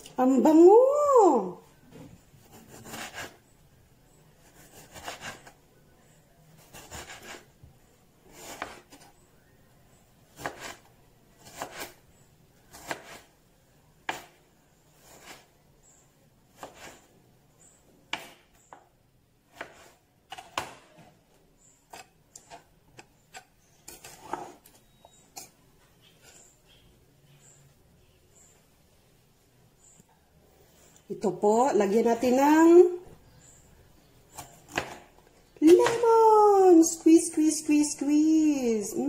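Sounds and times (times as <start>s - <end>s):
knife slicing tomato: 2.4s - 3.4s, 4.4s - 5.6s, 6.6s - 7.5s, 8.3s - 9.1s, 10.3s - 12.0s, 12.7s - 13.3s, 14.0s - 15.5s, 16.5s - 17.1s, 19.5s - 21.0s.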